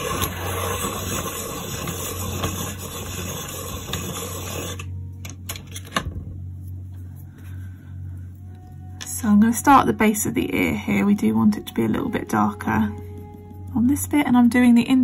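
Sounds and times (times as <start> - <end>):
pencil being sharpened: 0.0 - 4.9.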